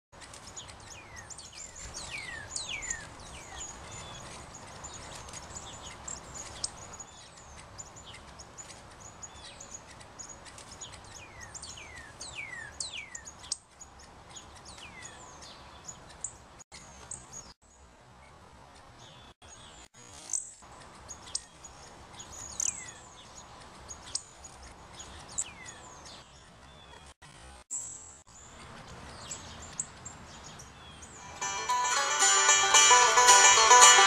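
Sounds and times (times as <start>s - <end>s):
cardinals chirping: 0.2s - 17.5s, 20.4s - 27.0s.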